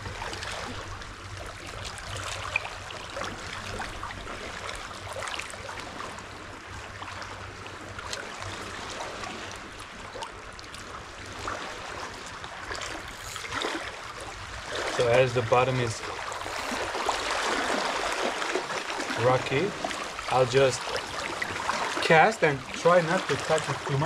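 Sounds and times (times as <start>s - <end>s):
sea water lapping on rocks: 8.0s - 24.0s.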